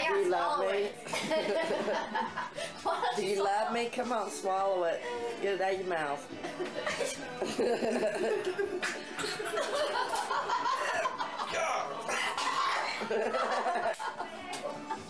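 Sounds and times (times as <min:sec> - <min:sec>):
people laughing: 0:01.0 - 0:03.3, 0:06.4 - 0:15.0
man coughing and gagging: 0:10.8 - 0:13.1.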